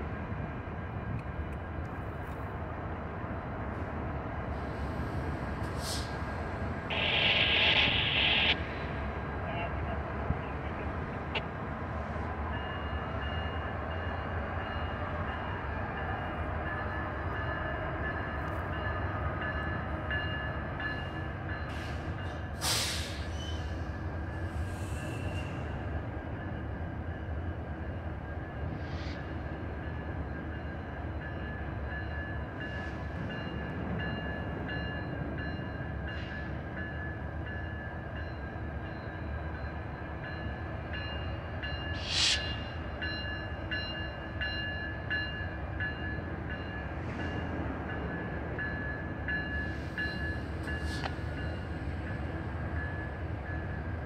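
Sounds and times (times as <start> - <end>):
diesel locomotive rumble: 0.0 - 27.8.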